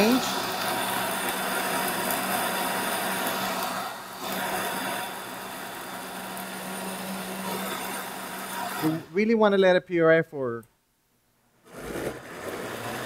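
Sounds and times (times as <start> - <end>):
blender motor running: 0.0 - 9.1, 11.7 - 13.0.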